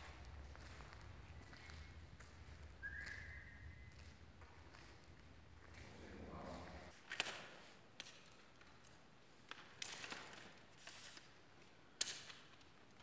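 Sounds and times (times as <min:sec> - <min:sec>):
footsteps on concrete floor: 0:00.0 - 0:06.8.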